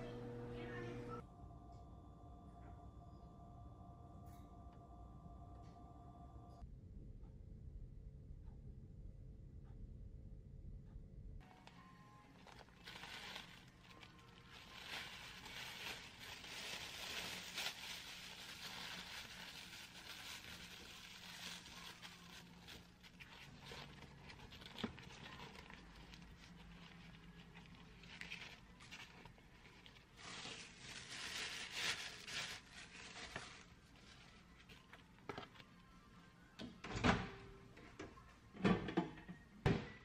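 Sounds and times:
plastic and paper crinkling: 11.4s - 35.9s.

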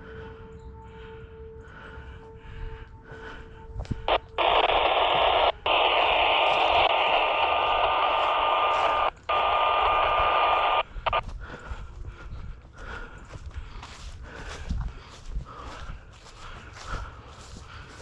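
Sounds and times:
radio static hiss: 3.9s - 11.2s.

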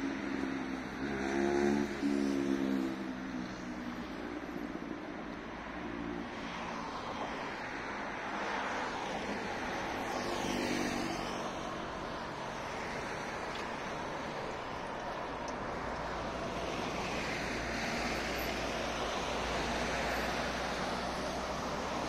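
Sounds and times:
hiss of passing cars: 8.3s - 14.8s.

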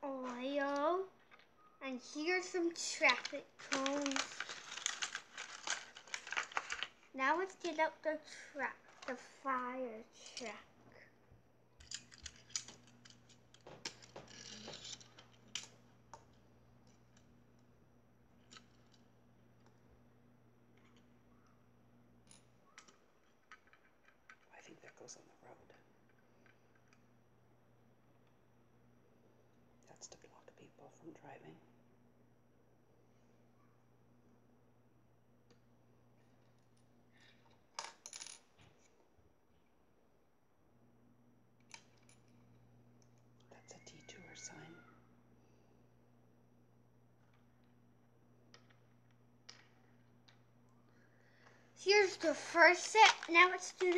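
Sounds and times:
faint steady hum: 0.0s - 53.9s
plastic toy rattling: 2.9s - 7.8s, 52.0s - 53.9s.

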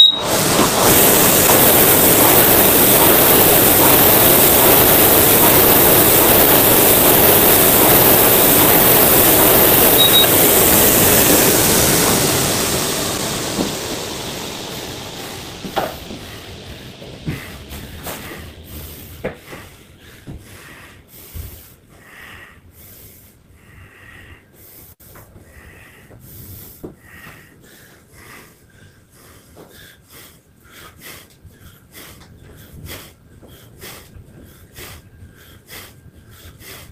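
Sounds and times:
short high beep: 0.0s - 0.3s, 9.9s - 10.4s
rowing machine fan whooshing: 0.0s - 21.9s.

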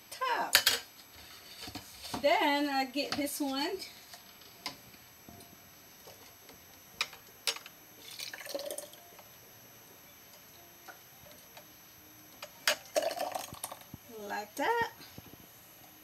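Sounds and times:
sauce pouring: 8.0s - 9.0s, 12.8s - 13.8s.

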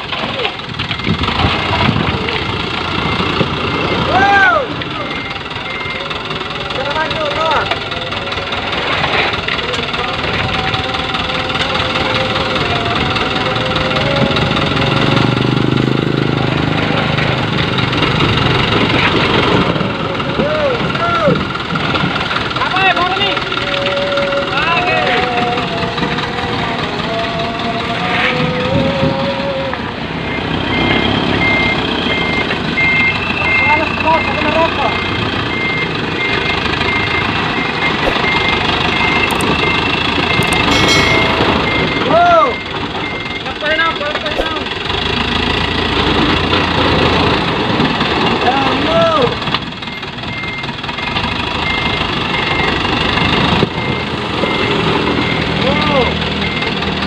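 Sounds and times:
dump truck diesel engine: 0.0s - 57.0s
reverse alarm beeping: 2.5s - 7.6s, 30.2s - 44.7s, 49.8s - 56.9s.

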